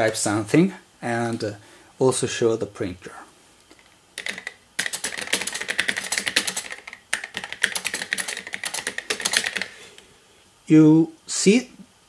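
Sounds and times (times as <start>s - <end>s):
fast keyboard typing: 4.2s - 9.8s.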